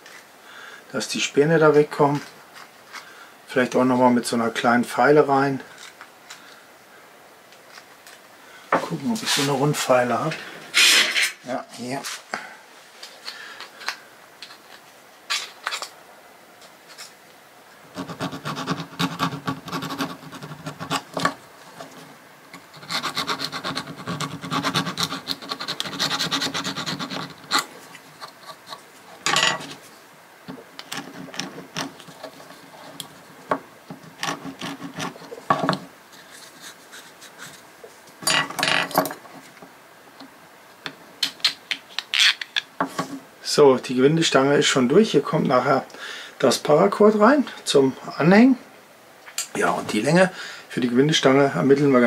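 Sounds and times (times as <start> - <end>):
needle file rasping in hole: 18.0 - 21.9, 22.6 - 28.9, 34.1 - 35.4.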